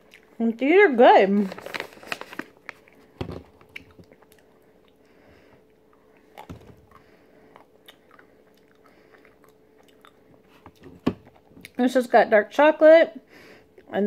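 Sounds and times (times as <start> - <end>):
person chewing chocolate: 0.0 - 0.4, 3.6 - 11.8.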